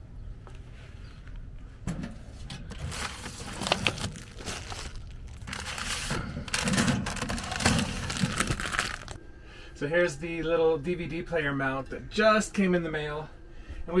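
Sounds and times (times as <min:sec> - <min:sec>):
package crinkling and rustling: 0:02.7 - 0:09.2.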